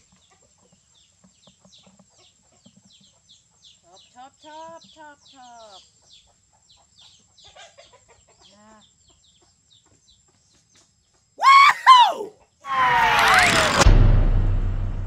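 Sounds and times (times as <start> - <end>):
chicken squawking: 11.4 - 12.9
burst of noise with sliding tones: 12.7 - 15.0.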